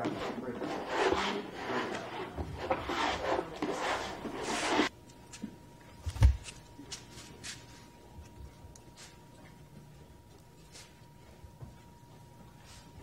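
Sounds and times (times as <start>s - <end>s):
squeegee scraping resin: 0.0s - 4.9s
faint steady hum: 0.0s - 13.0s.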